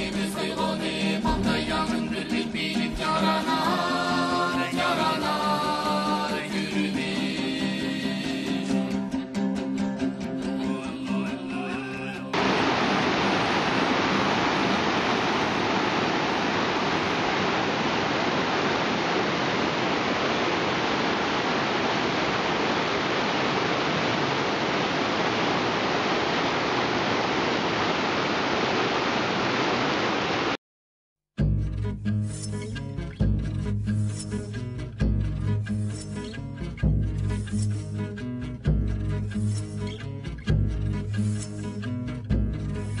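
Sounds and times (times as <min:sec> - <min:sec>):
river rapids rushing: 0:12.3 - 0:30.6.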